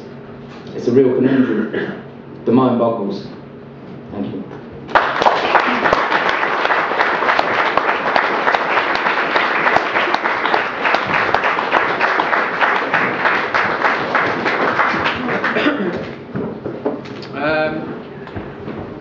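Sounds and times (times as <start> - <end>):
audience applauding: 4.9 - 16.2.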